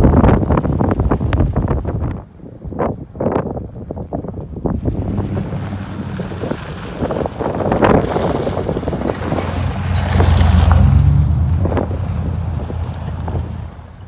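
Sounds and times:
road noise: 0.0s - 14.0s
vehicle engine hum: 0.0s - 14.0s
wind buffeting microphone: 0.0s - 14.0s.

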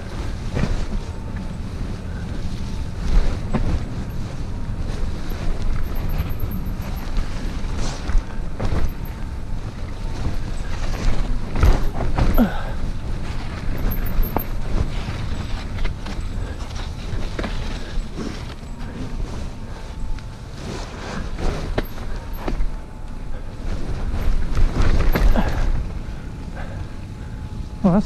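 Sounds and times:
bike knocking and rattling: 0.0s - 27.6s
tyres rumbling on dirt: 0.0s - 28.0s.

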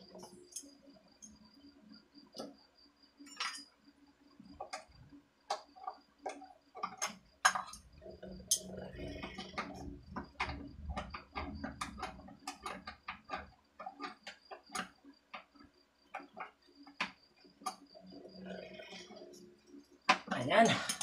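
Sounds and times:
metallic clicks of hand tools: 20.1s - 21.0s.

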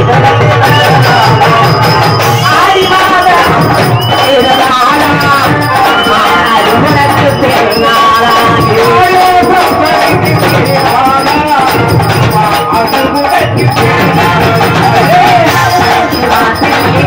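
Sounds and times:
hand drums: 0.0s - 17.0s
ankle bells jingling: 0.7s - 17.0s.

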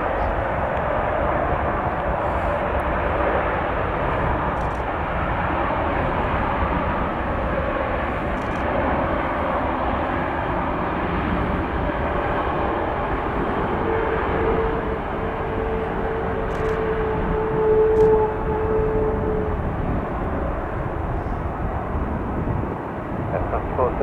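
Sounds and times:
jet engines roaring: 0.0s - 24.0s.

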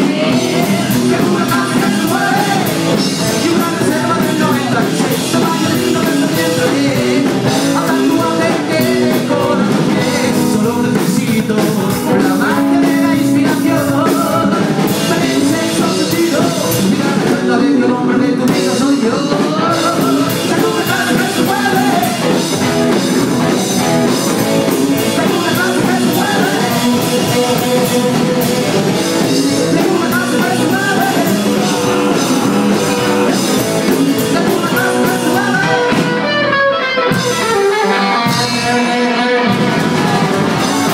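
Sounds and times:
drum kit: 0.0s - 40.9s
electric guitar: 0.0s - 40.9s
man singing: 0.0s - 40.9s
upright double bass: 19.6s - 35.6s.

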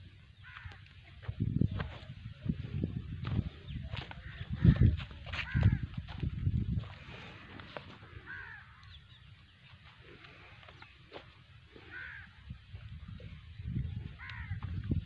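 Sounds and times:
bird calling: 7.1s - 12.5s, 13.2s - 15.0s.

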